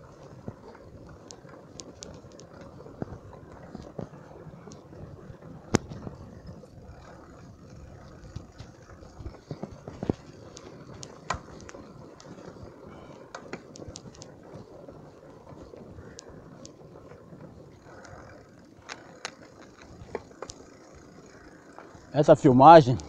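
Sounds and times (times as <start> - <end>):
bike rattling clicks and knocks: 0.0 - 23.0
bike tyre rumble on mud: 0.0 - 23.0.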